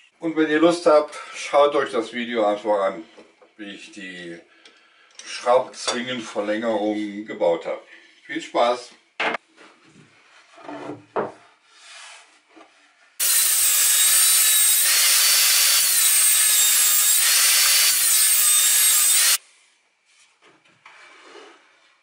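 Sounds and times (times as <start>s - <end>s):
table saw cutting plywood: 13.2s - 19.4s.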